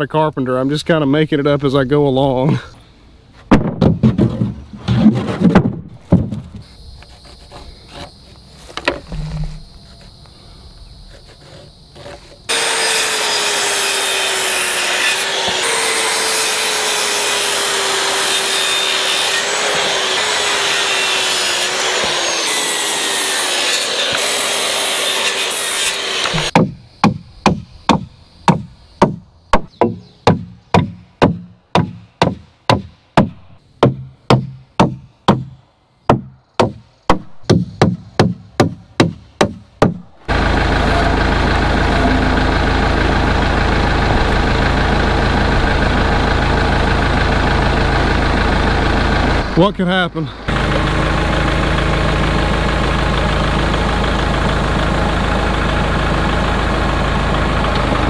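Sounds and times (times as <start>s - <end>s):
circular saw cutting wood: 11.1s - 26.6s, 40.2s - 49.7s, 50.5s - 58.0s
hammer driving nails: 26.2s - 40.0s.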